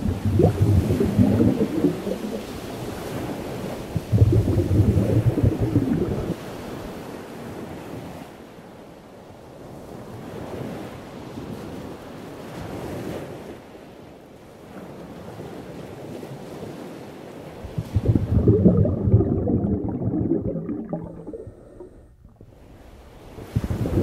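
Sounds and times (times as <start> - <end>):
ocean waves washing in: 0.0 - 7.0, 17.7 - 24.0.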